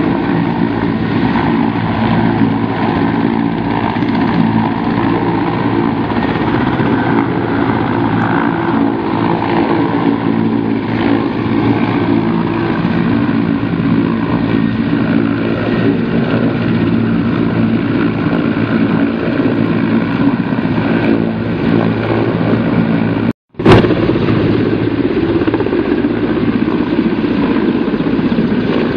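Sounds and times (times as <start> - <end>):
helicopter rotor noise: 0.0 - 28.9
helicopter turbine whine: 0.0 - 28.9.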